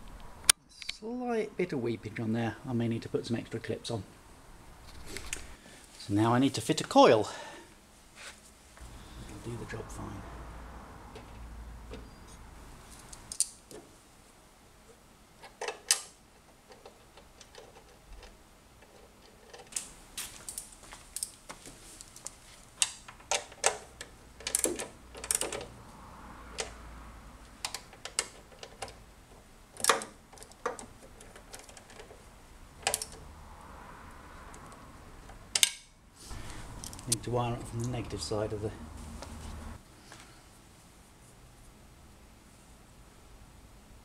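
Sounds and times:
metallic clicks and knocks: 22.2 - 25.8, 27.6 - 29.0, 32.8 - 33.2.

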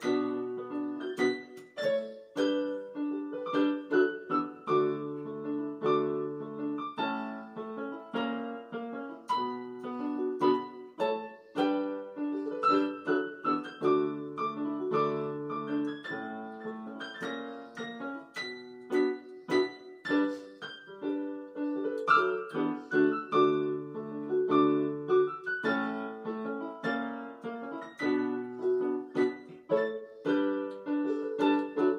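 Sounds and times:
electronic keyboard piano chords: 0.0 - 31.9.

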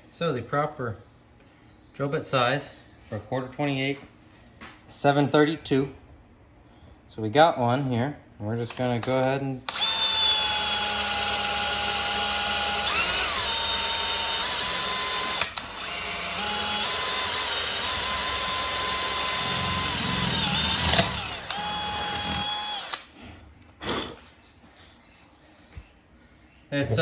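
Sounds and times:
electric drill whining: 9.7 - 23.1.

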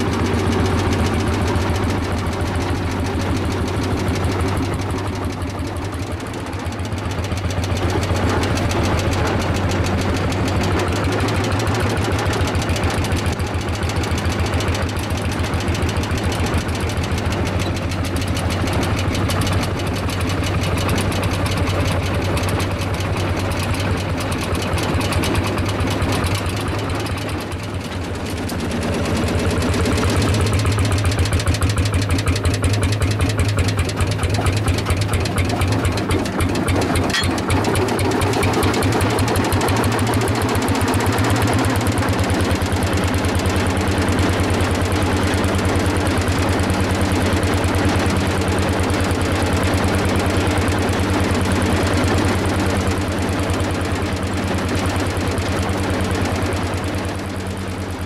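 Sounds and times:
tractor engine chugging: 0.0 - 58.0.

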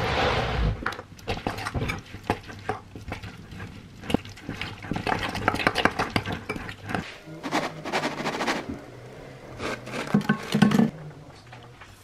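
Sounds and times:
metal utensil scraping glass bowl: 3.4 - 8.7, 9.6 - 10.9.

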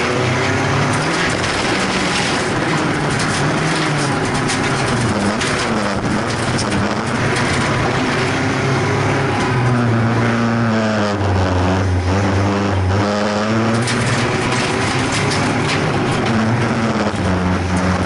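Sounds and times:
clicks and rattles of car body: 0.0 - 9.8, 13.4 - 18.0
car engine revving: 0.0 - 18.0.

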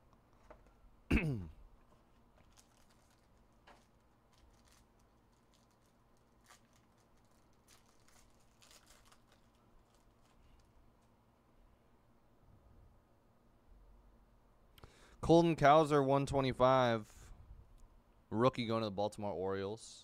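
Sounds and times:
plastic wrapper crinkling: 1.9 - 11.2.

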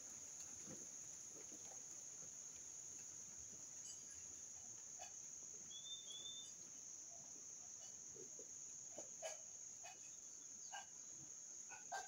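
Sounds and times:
high-pitched insect trill: 3.7 - 12.0
whistled bird notes: 5.7 - 6.6.

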